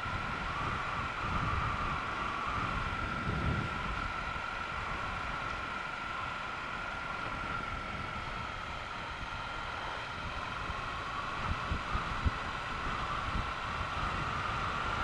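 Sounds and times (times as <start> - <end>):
motorcycle engine cruising: 0.0 - 15.0
wind and road noise: 0.0 - 15.0.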